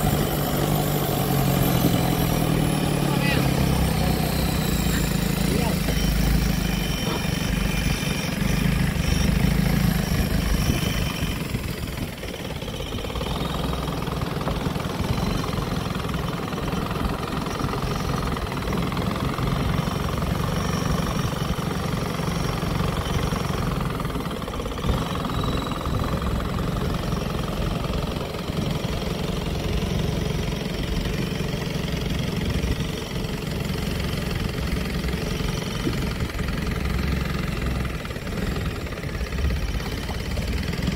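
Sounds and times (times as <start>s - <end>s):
boat engine running: 0.0s - 40.9s
boat moving through water: 0.0s - 40.9s.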